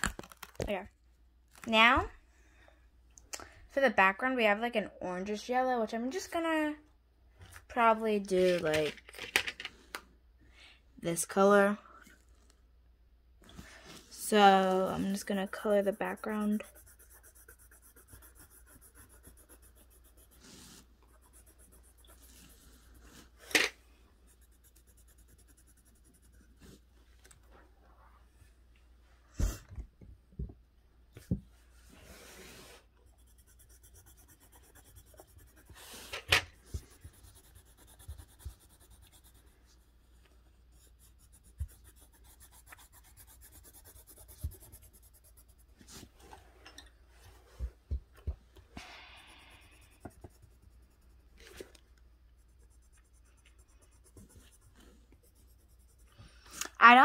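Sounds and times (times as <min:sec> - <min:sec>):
pencil scratching on paper: 0:13.9 - 0:26.9, 0:32.2 - 0:46.1, 0:49.2 - 0:57.0.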